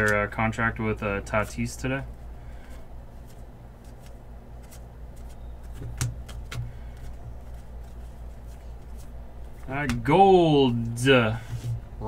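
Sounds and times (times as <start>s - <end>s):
steady low hum: 0.0s - 12.0s
cards clicking and tapping: 3.2s - 10.1s.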